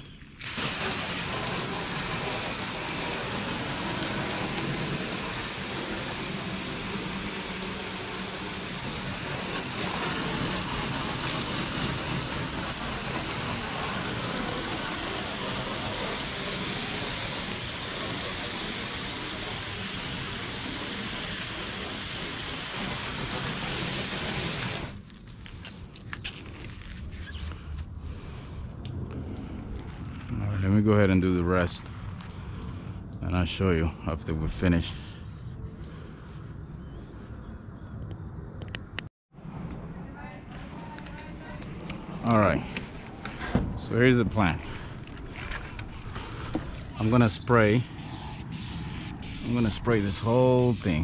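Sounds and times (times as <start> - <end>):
hose water splattering on metal: 0.4 - 28.2, 46.1 - 51.0.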